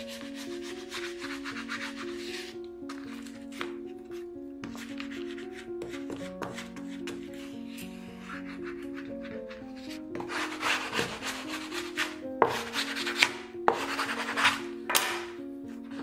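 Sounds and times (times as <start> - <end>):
soft background music: 0.0 - 16.0
bone folder rubbing book cloth: 4.7 - 14.6.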